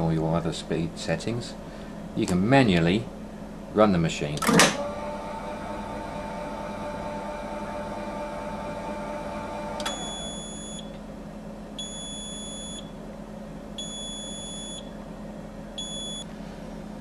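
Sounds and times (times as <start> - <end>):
grinder motor whine: 4.8 - 11.0
high electronic beep: 9.9 - 10.9, 11.8 - 12.9, 13.8 - 14.9, 15.8 - 16.2.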